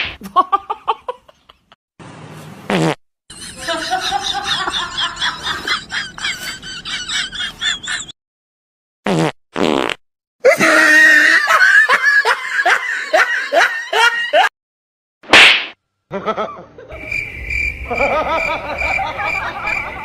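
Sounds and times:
laughter: 0:00.2 - 0:01.8, 0:03.3 - 0:08.2, 0:10.5 - 0:14.5, 0:16.1 - 0:17.0, 0:17.9 - 0:20.0
comedy farting sounds: 0:02.7 - 0:03.0, 0:09.0 - 0:10.0.

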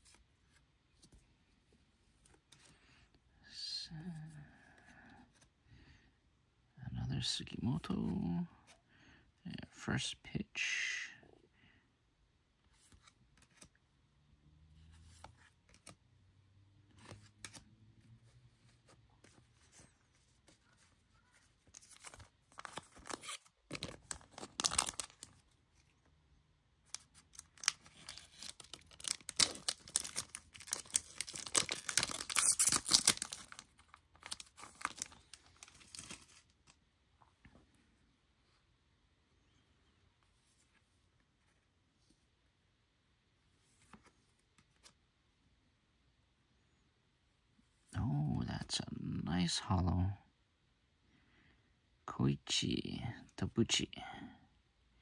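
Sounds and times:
card pack wrapper tearing and crinkling: 0:21.6 - 0:25.4, 0:26.9 - 0:36.6.

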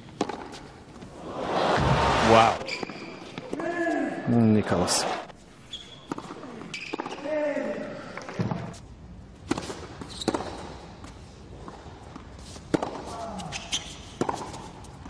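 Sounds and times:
tennis ball hits and bounces: 0:00.0 - 0:00.6, 0:12.7 - 0:13.1, 0:14.1 - 0:14.7.

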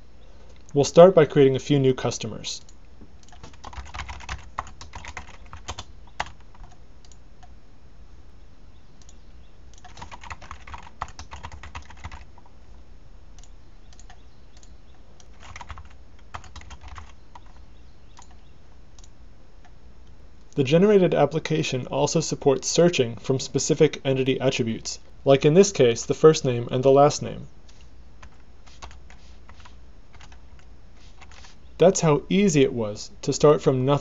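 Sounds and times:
low steady hum: 0:00.0 - 0:34.0
computer keyboard typing: 0:02.6 - 0:07.5, 0:09.0 - 0:12.5, 0:13.4 - 0:18.4, 0:28.2 - 0:31.6.

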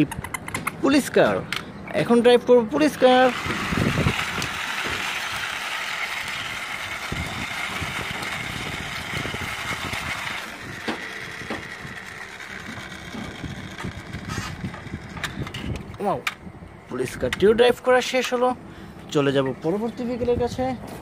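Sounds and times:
toy car wheels grinding on concrete: 0:02.8 - 0:16.1
low rumbles: 0:06.2 - 0:20.9.

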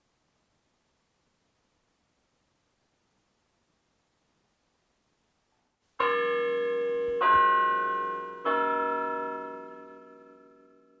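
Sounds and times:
bell chimes ringing: 0:06.0 - 0:11.0.

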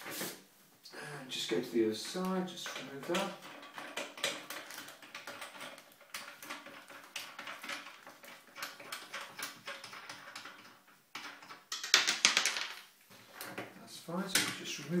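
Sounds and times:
small clicks and rattles: 0:02.0 - 0:13.7.

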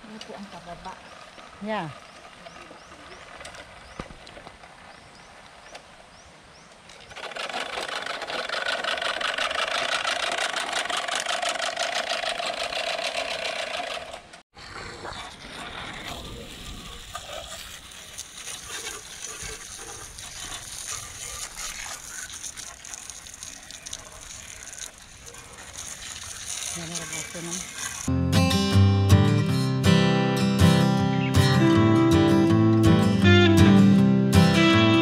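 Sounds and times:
reel mower clicking whir: 0:06.8 - 0:14.4, 0:15.6 - 0:28.1
hose nozzle spraying water: 0:15.4 - 0:28.1.

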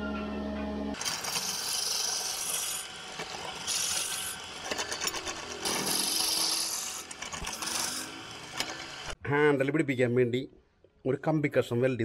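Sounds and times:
drill press boring into wood: 0:01.0 - 0:09.2.

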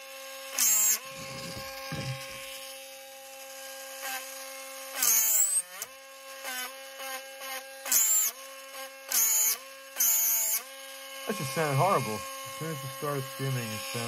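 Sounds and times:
rotary tool whining: 0:00.5 - 0:14.0
rotary tool screeching under load: 0:00.6 - 0:02.5
bit grinding wood: 0:00.6 - 0:02.7, 0:09.2 - 0:14.0.

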